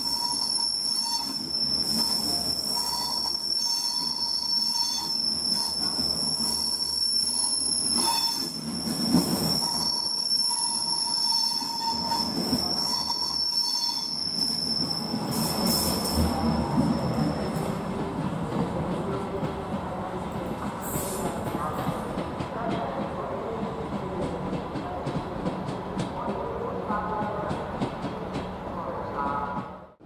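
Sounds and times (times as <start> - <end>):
train wheels squealing: 0.0 - 18.0
train rumbling: 0.0 - 30.0.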